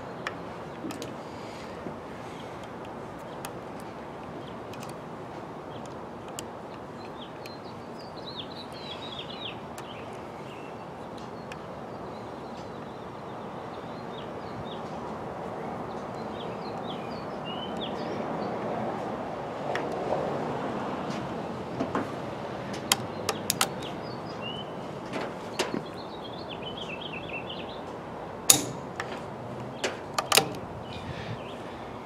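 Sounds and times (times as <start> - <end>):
steady outdoor background hiss: 0.0 - 32.0
small bird chirping: 6.9 - 14.8.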